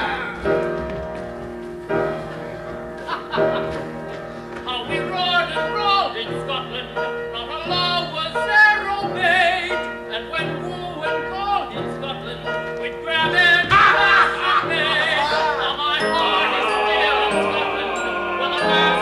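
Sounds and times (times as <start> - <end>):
instrumental accompaniment: 12.4 - 19.0
stage musical singing: 13.5 - 19.0.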